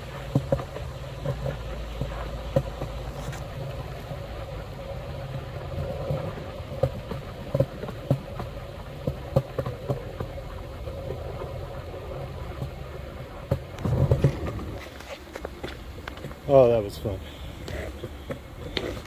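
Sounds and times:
sharp clicks and knocks: 0:00.0 - 0:04.0, 0:05.7 - 0:11.6, 0:12.5 - 0:16.5
skateboard wheels rolling on concrete: 0:00.0 - 0:19.0.

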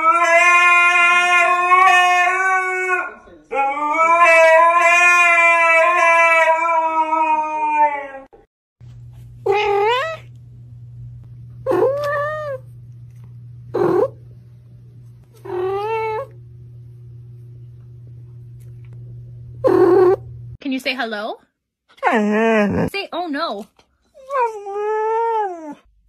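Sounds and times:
husky howling: 0:00.0 - 0:08.4
steady low hum: 0:08.8 - 0:20.6.

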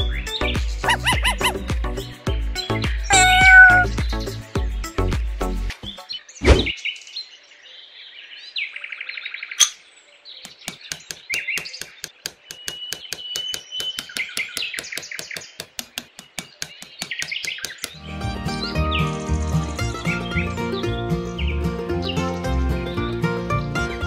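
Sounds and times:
birds chirping: 0:00.0 - 0:05.1, 0:05.7 - 0:24.0
thump: 0:06.4 - 0:06.7
small hammer tapping: 0:10.4 - 0:18.0.

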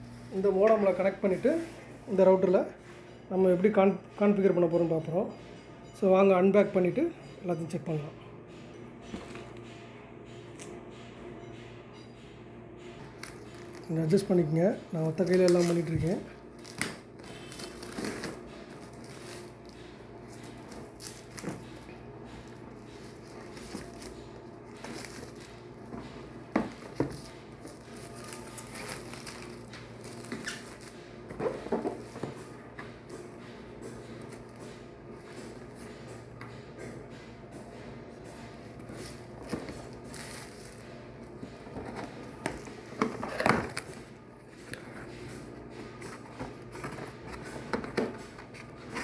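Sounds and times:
plastic wrap rustling and crinkling: 0:15.0 - 0:21.8, 0:26.8 - 0:32.0, 0:39.0 - 0:40.9
plastic wrap crinkling: 0:27.1 - 0:31.0.

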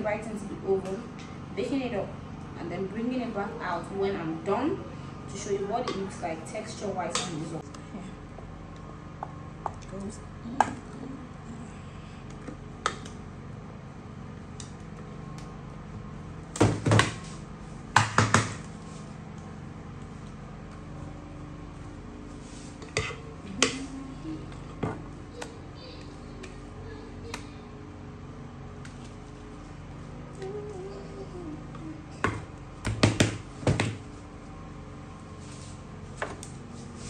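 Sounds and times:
spatula scraping bowl: 0:22.7 - 0:23.9.

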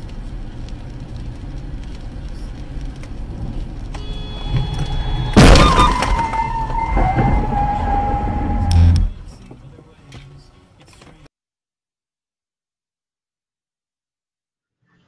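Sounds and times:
car driving on wet road: 0:00.0 - 0:10.0
loud collision crash: 0:04.4 - 0:09.2
steady electronic tone: 0:06.8 - 0:09.2.

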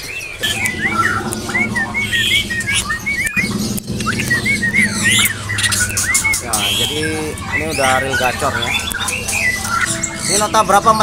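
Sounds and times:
sharp bird calls: 0:00.0 - 0:11.0
songbirds chirping: 0:00.0 - 0:11.0
steady low hum: 0:00.4 - 0:08.9.

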